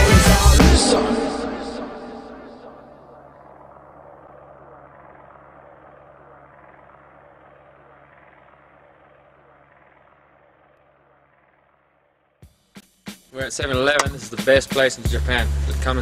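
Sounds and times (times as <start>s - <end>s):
low hum: 0.0s - 12.4s.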